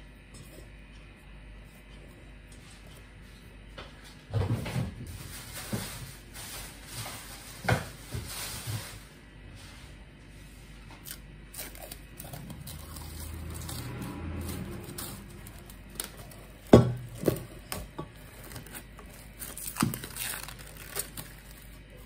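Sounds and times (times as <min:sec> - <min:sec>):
low hum: 0:09.6 - 0:22.0.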